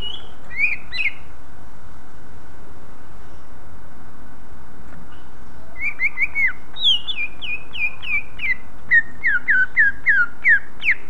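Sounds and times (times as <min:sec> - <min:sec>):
bird singing whistles: 0:00.0 - 0:01.3, 0:05.8 - 0:11.0.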